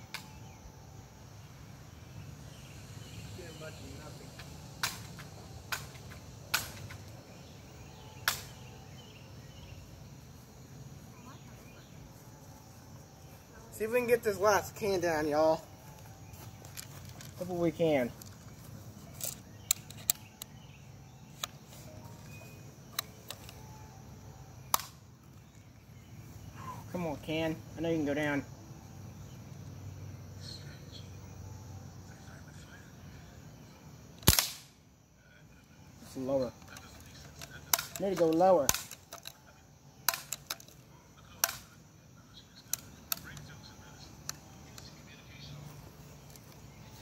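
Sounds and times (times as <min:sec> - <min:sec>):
bb gun snaps: 0:04.8 - 0:07.0, 0:08.2 - 0:08.6, 0:24.7 - 0:25.0, 0:34.2 - 0:34.8, 0:37.7 - 0:39.3, 0:40.1 - 0:40.8, 0:41.4 - 0:41.7.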